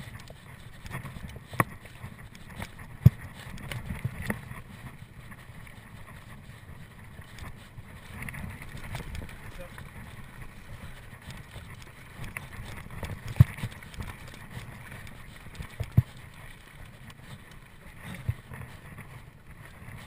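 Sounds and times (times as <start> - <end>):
bike rumbling on trail: 0.0 - 20.0.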